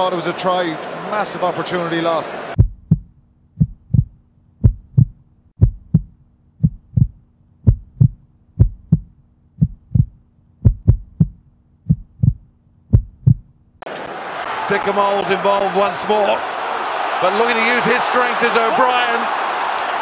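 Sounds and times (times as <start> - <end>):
heartbeat thumps: 2.6 - 13.5.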